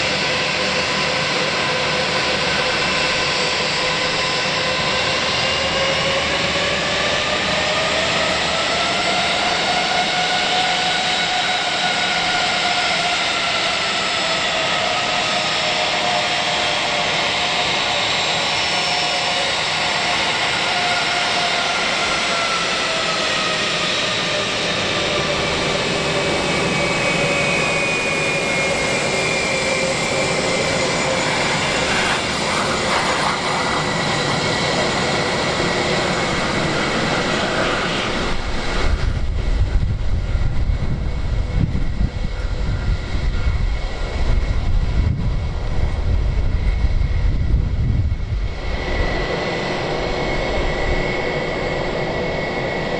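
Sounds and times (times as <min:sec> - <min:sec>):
deep jet exhaust rumble: 0:00.0 - 0:52.9
jet engine whine: 0:00.0 - 0:52.9.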